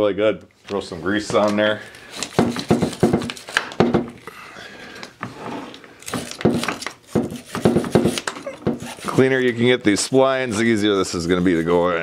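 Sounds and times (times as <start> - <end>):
rag scrubbing metal shaft: 7.4 - 10.0.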